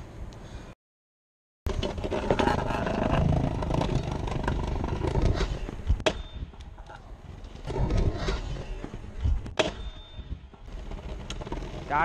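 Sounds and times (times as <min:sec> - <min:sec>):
scooter wheels rolling over pavers: 0:01.7 - 0:06.1, 0:10.5 - 0:12.0.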